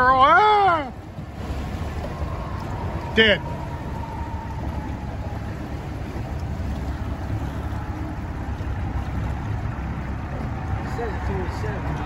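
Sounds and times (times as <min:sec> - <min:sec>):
boat engine rumble: 0:00.0 - 0:12.0
wind on microphone: 0:00.9 - 0:10.9.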